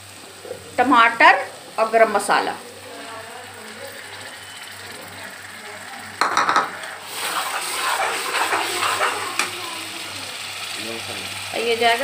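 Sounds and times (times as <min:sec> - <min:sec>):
oil sizzling: 0:00.0 - 0:12.0
ladle clattering against pan: 0:06.2 - 0:06.9
ladle scraping and stirring: 0:06.6 - 0:09.4.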